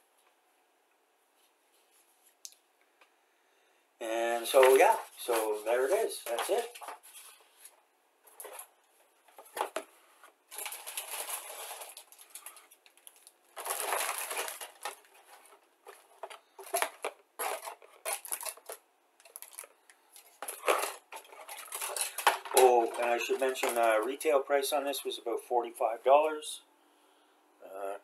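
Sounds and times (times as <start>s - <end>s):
plastic sprues rattling in box: 4.4s - 7.4s, 10.5s - 24.1s
paper sheets rustling: 4.4s - 24.4s.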